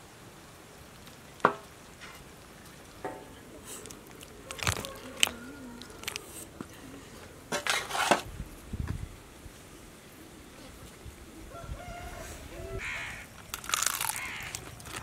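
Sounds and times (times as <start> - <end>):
wet plops and squelches: 3.7 - 6.3.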